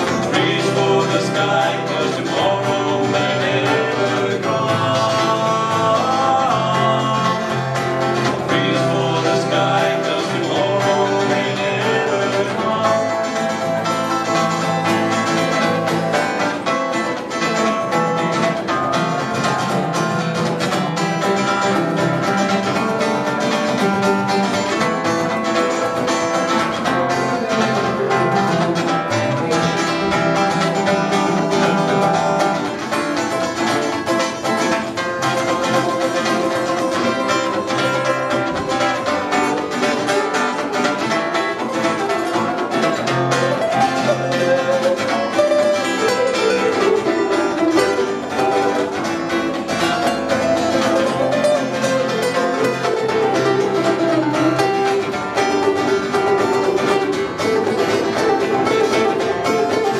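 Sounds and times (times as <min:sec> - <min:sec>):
acoustic guitar strumming: 0:00.0 - 0:59.9
electric guitar melody: 0:00.0 - 0:59.9.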